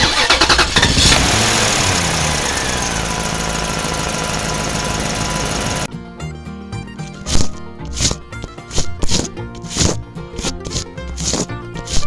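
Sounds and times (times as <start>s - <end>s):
falling engine whine: 0.0s - 5.9s
vehicle engine starting and running: 0.0s - 5.9s.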